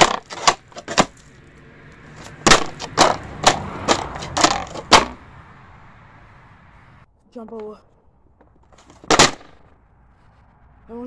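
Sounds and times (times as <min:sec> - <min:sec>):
snowboard slapping on asphalt: 0:00.0 - 0:06.3, 0:08.4 - 0:10.4.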